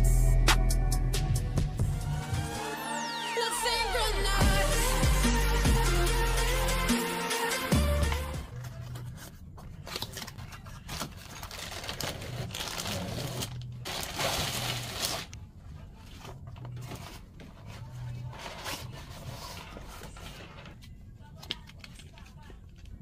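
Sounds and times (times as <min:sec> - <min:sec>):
packaging rustling and crinkling: 0:08.5 - 0:15.4.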